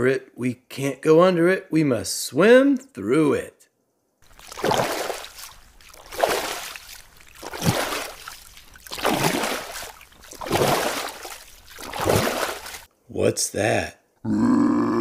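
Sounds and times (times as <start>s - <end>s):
swimming strokes splashing water: 4.2s - 12.9s.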